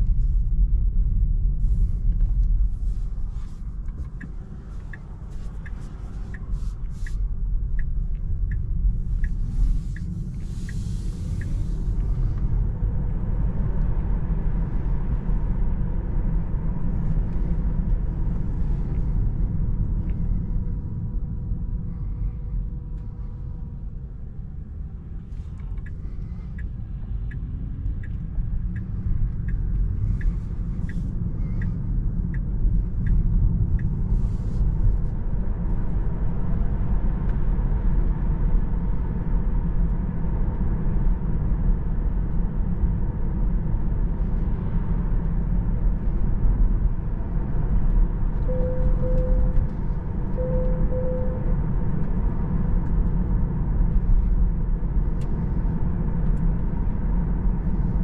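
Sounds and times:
road and tyre rumble: 0.0s - 58.0s
short beeps: 48.5s - 49.7s, 50.3s - 51.6s.

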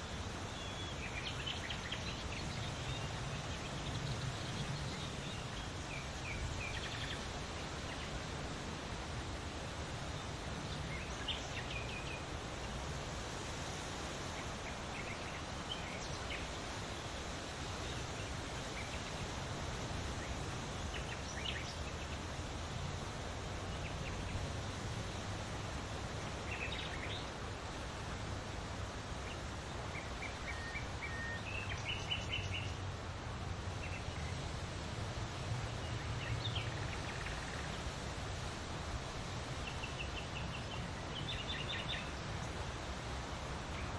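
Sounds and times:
small birds chirping: 0.0s - 8.3s, 25.0s - 27.9s, 29.1s - 32.8s, 35.7s - 38.5s, 39.2s - 43.9s
wind rustling leaves: 0.0s - 43.9s.

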